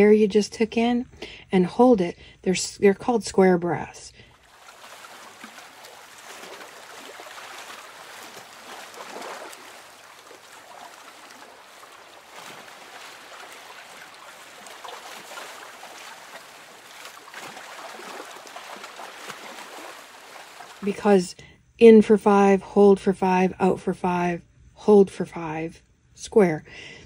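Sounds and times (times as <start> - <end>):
calm sea waves washing: 4.3 - 20.9.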